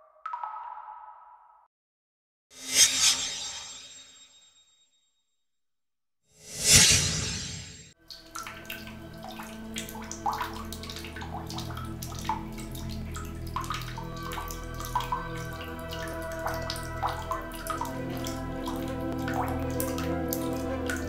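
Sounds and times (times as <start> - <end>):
water dripping into bathtub: 0.0 - 1.7, 8.0 - 21.0
whoosh: 6.4 - 8.0.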